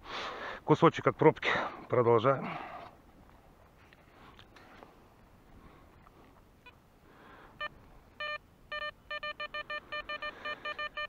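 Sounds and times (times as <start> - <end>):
metal detector beeping: 7.6 - 11.0.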